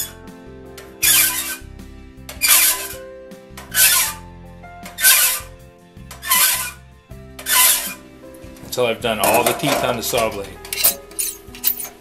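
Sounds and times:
file rasping on saw teeth: 1.0 - 1.6, 3.7 - 4.2, 5.0 - 5.5, 6.2 - 6.8, 7.5 - 8.0.

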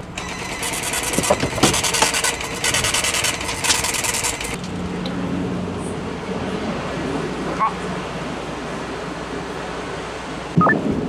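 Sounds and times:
suitcase wheels rattling on pavement: 0.3 - 4.6.

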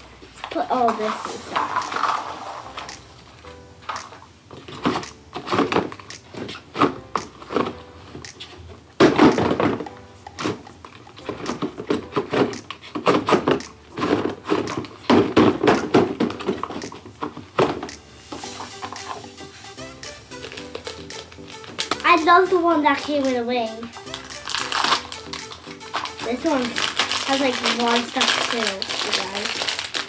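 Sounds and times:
plastic capsules rattling: 0.4 - 3.0, 20.3 - 30.0.

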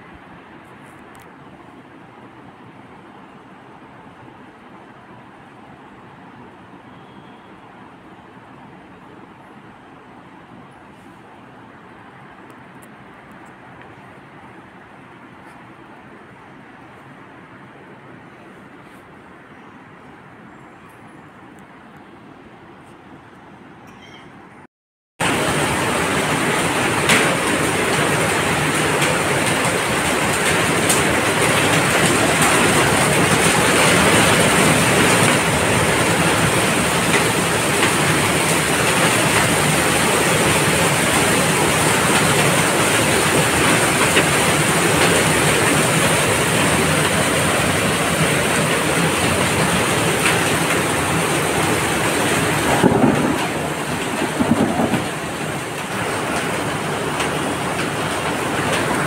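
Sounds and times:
heavy rain on pavement: 25.2 - 59.0.

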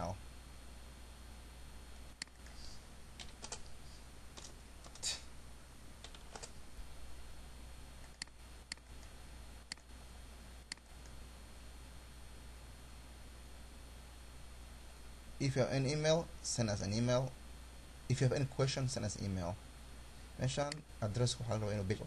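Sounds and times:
steady low hum: 0.0 - 22.0
keyboard typing: 3.2 - 3.7, 4.4 - 5.2, 6.0 - 6.6, 9.7 - 9.9
mouse clicks: 8.0 - 9.1, 9.7 - 9.9, 10.7 - 11.2.

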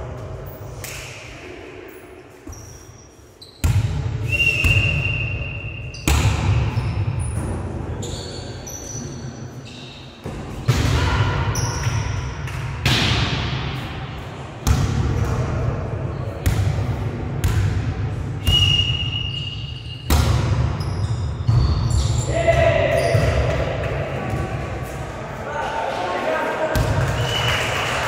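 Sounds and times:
volleyball hits echoing: 5.9 - 7.7, 10.2 - 13.8, 14.6 - 19.1, 20.0 - 24.9, 26.7 - 27.4.

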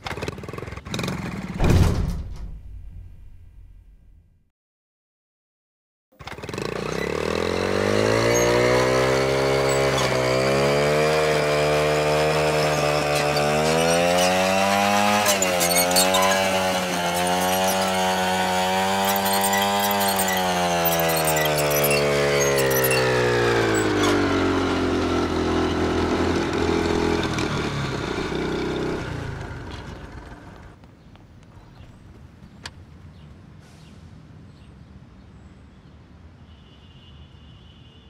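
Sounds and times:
small motorbike engine revving: 0.0 - 1.6, 6.2 - 30.8.

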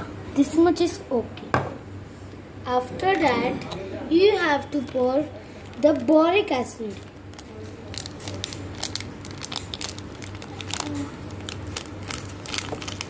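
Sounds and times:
plastic sachet crinkling: 5.5 - 13.0.

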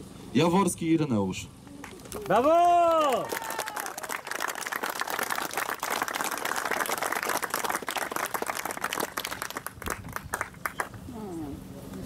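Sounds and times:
people applauding: 1.8 - 11.0.

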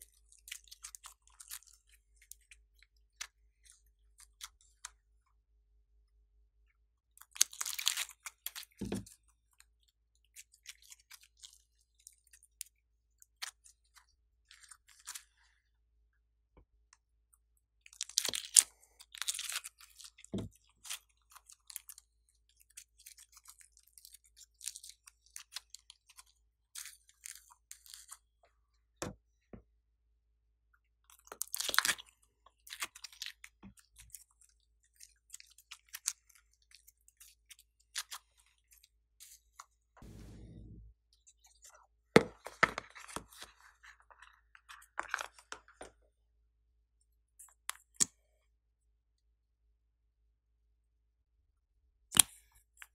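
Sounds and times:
slime wet crackling and clicking: 31.1 - 38.3
dull low knocks: 40.0 - 40.9.

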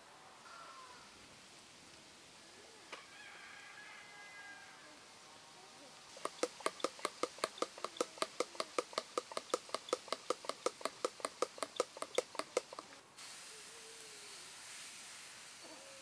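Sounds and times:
steady hiss: 0.0 - 3.8, 4.6 - 16.0
utensil beating against bowl: 6.2 - 12.9.

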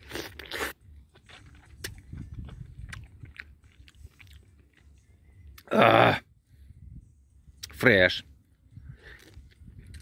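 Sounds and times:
person chewing wet mouth noises: 0.0 - 5.7.

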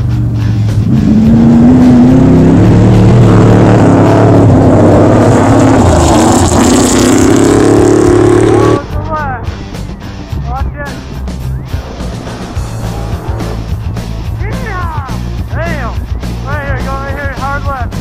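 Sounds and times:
truck engine revving high: 0.0 - 8.9, 11.0 - 16.5
tyres rushing on dirt: 9.7 - 18.0.

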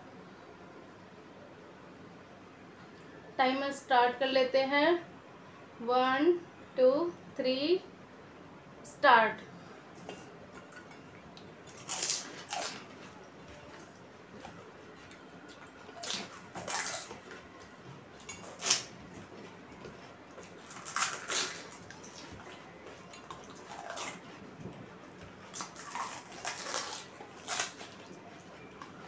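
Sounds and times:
eating noises: 9.9 - 29.0.

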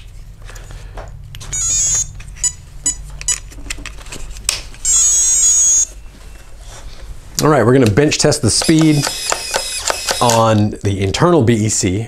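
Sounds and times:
servo motor buzzing: 4.8 - 5.9, 8.5 - 10.5
high-pitched motor whine: 4.8 - 6.1, 8.5 - 10.4
servo clicks: 8.5 - 10.7.

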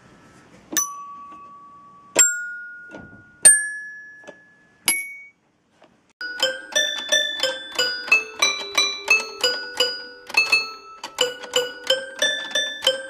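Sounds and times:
toy xylophone notes: 0.8 - 5.3, 6.2 - 13.0
toy piano run of notes: 6.2 - 13.0.

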